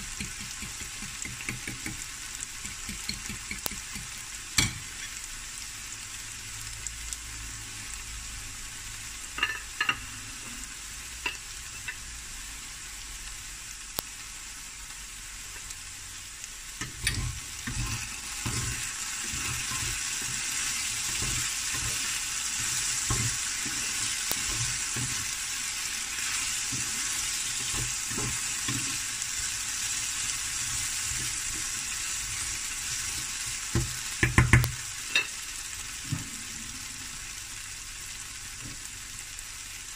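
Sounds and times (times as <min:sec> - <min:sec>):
potatoes sizzling in a pan: 0:00.0 - 0:39.9
spatula scraping a pan: 0:16.8 - 0:29.2.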